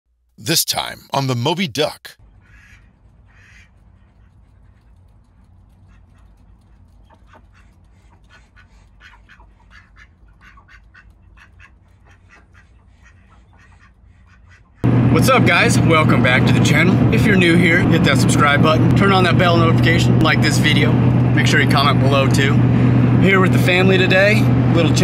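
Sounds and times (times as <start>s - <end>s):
ducks quacking: 2.2s - 14.9s
low steady rumble: 2.2s - 25.0s.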